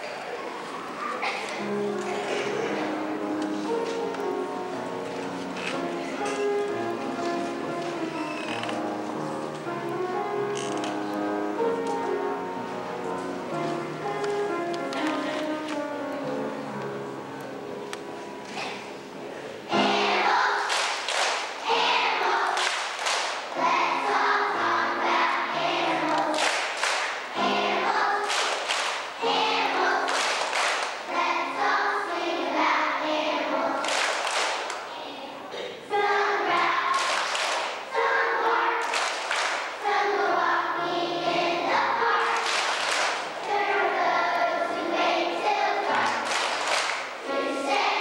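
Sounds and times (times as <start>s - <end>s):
children's choir singing: 0.0s - 48.0s.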